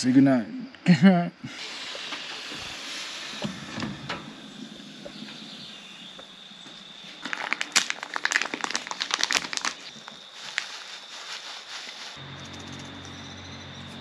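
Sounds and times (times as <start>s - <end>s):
kettle hissing: 1.5s - 12.2s
packet crinkling: 7.0s - 12.2s.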